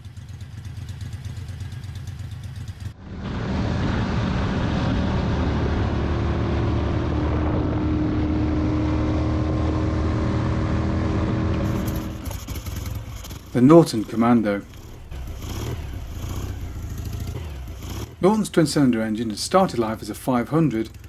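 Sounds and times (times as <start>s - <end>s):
motorcycle engine idling: 0.0s - 3.2s, 11.6s - 21.0s
motorcycle riding on road: 0.0s - 21.0s
rushing wind: 3.0s - 18.4s.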